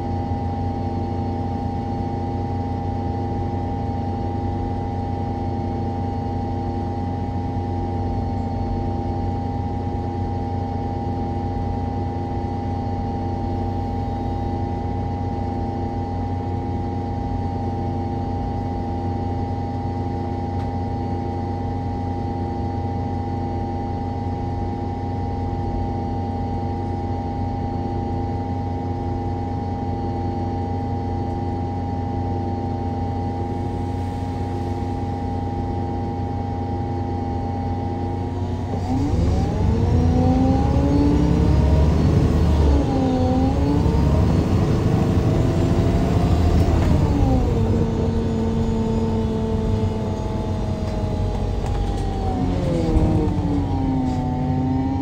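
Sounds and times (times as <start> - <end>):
steady whine: 0.0 - 55.0
bus engine running: 33.1 - 55.0.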